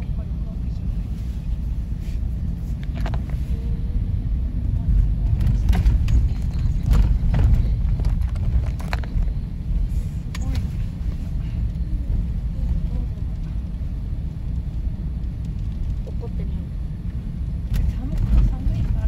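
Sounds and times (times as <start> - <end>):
car road rumble: 0.0 - 19.0
car knocks and rattles: 4.8 - 9.5.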